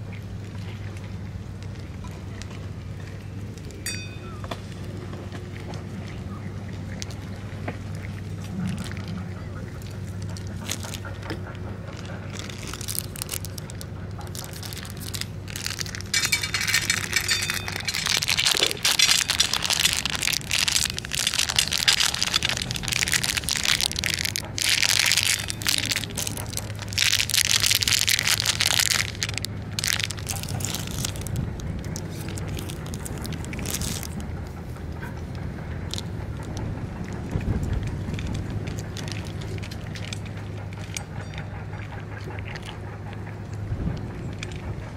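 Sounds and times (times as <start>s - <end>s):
cat crunching dry kibble: 4.6s - 44.7s
foil bag crinkling: 9.8s - 34.4s, 37.8s - 40.3s.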